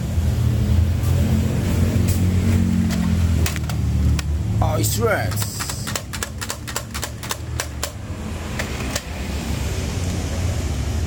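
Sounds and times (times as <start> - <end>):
plastic toys clacking: 2.9 - 4.3, 5.0 - 9.1.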